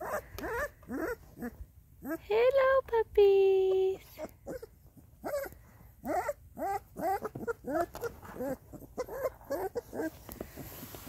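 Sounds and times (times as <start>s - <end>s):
puppies whimpering: 0.0s - 2.2s, 4.2s - 10.2s.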